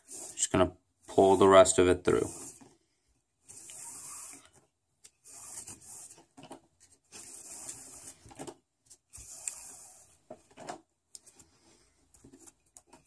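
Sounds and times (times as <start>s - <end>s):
cord hissing as it slides: 0.0s - 2.8s, 3.4s - 6.3s, 7.1s - 8.5s, 9.1s - 10.2s.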